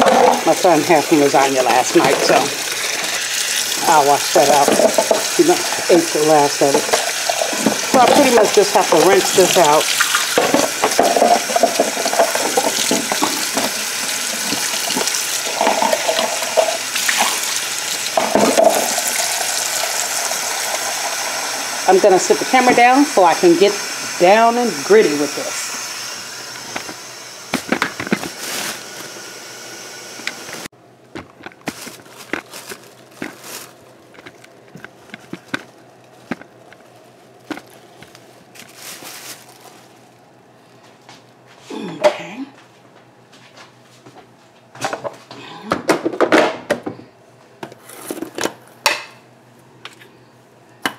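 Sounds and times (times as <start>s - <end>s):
container rinsed splashing: 0.0s - 21.8s
tap running into sink: 3.8s - 6.0s, 6.6s - 13.8s, 18.1s - 20.0s.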